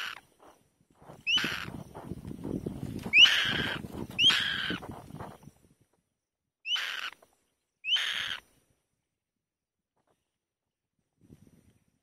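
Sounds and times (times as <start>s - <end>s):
bird raspy screeches: 0.0s - 0.2s, 1.2s - 1.8s, 3.1s - 4.8s, 6.7s - 7.2s, 7.8s - 8.5s.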